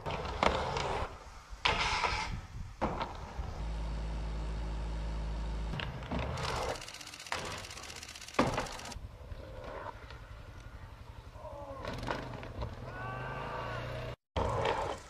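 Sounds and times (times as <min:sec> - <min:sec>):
skateboard wheels rolling hiss: 0:00.0 - 0:04.6
low engine hum: 0:03.4 - 0:06.2.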